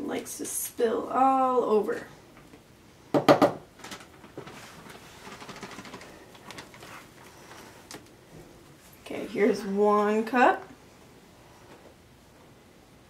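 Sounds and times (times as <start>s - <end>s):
plastic bag crinkling: 3.8s - 8.1s.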